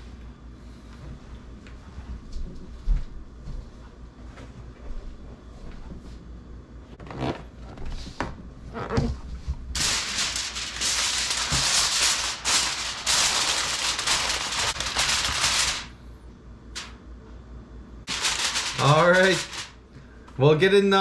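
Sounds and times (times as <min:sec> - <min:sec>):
aluminium foil crinkling: 0:09.7 - 0:16.0, 0:16.8 - 0:17.0, 0:18.1 - 0:19.8.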